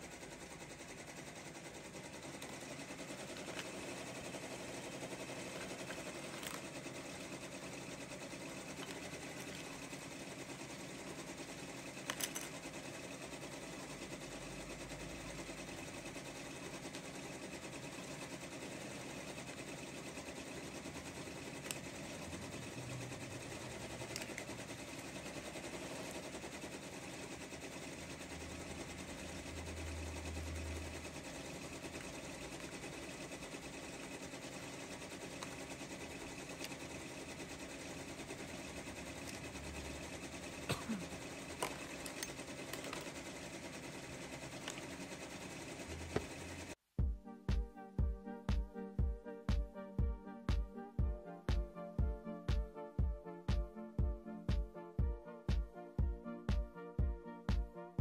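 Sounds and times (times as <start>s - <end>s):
embroidery machine running: 0.0s - 46.8s
plastic parts clicking: 5.5s - 6.7s, 12.0s - 12.6s, 24.0s - 24.5s, 41.6s - 43.2s.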